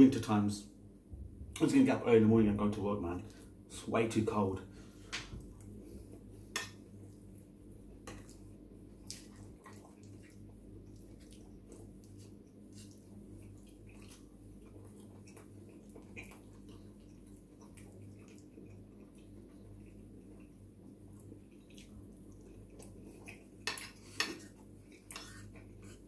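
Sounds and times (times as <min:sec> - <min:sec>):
steady low hum: 0:00.0 - 0:26.0
wet chewing: 0:08.0 - 0:26.0.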